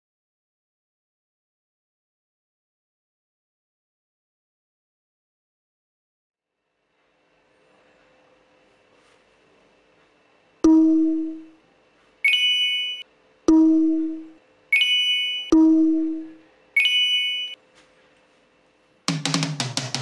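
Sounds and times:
bright high glittering chime: 12.3 - 13.0, 14.8 - 15.5
low ding: 12.3 - 17.6.

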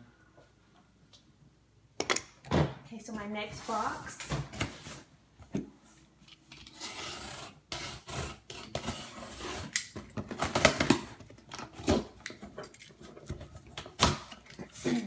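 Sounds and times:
box cutter slicing cardboard: 6.8 - 9.8.

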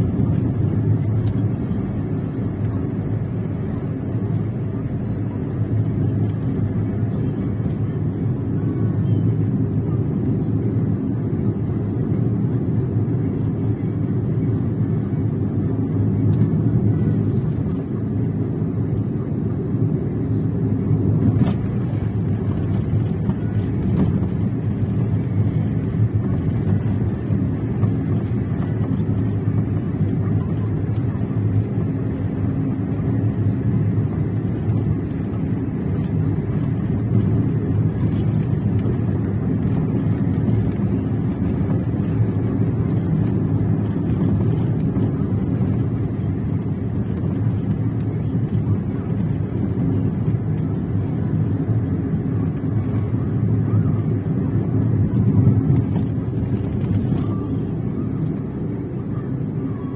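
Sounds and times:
vehicle engine and road rumble: 0.0 - 59.9.

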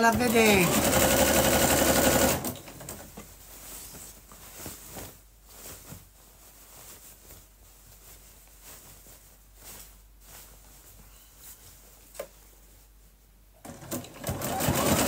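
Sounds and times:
sewing machine stitching: 0.0 - 2.9, 13.6 - 15.0
fabric rustling and tapping: 2.6 - 13.8.

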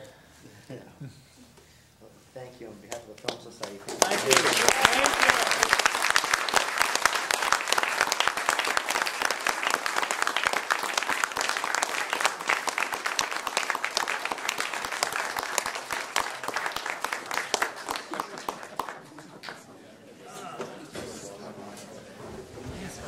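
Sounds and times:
audience applauding: 3.3 - 19.7.

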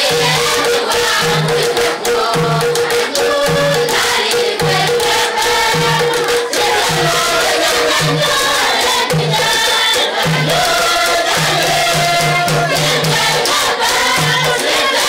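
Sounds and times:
hand-clapping: 0.0 - 15.0
low beat: 0.0 - 15.0
youth choir singing: 0.0 - 15.0.

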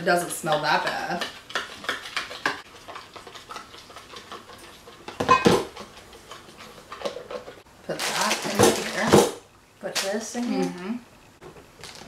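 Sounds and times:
spoon stirring in a bowl: 0.0 - 7.6
dishes clattering: 5.1 - 7.6.

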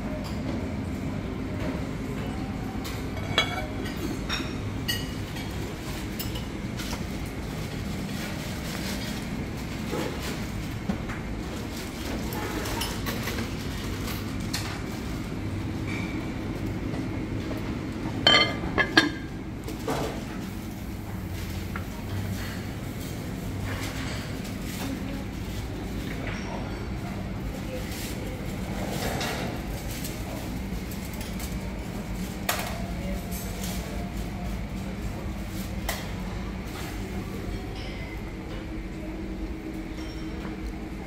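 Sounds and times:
dining room hum: 0.0 - 41.0
crockery and utensils clinking: 18.2 - 19.3.

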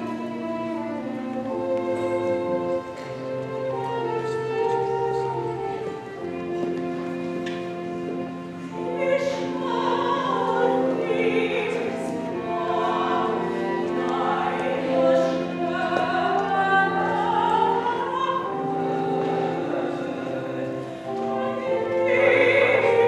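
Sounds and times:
organ chords: 0.0 - 23.0
person singing classically: 8.7 - 23.0.

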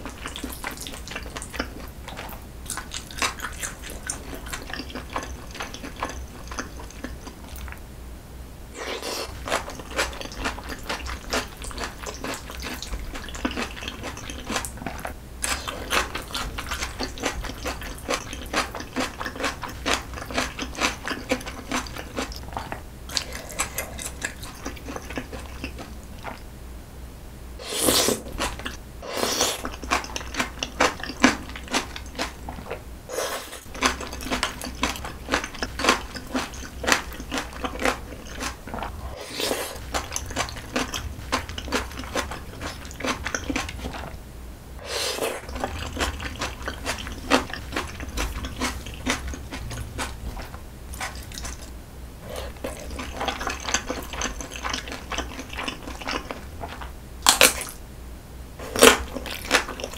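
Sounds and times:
close chewing with wet smacks: 0.0 - 7.8, 8.8 - 26.5, 29.6 - 32.8, 33.6 - 39.0, 39.8 - 44.2, 45.4 - 57.8, 58.7 - 59.9
noodles slurped: 8.8 - 26.4, 27.6 - 44.2, 44.8 - 56.9.

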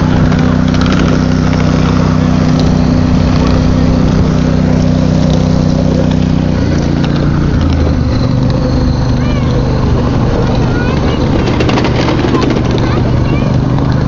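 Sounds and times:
small locomotive engine running: 0.0 - 14.0.

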